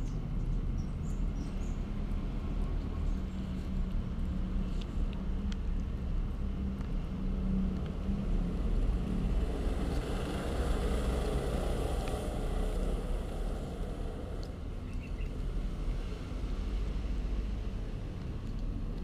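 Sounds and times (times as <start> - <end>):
low rumbling background noise: 0.0 - 19.0.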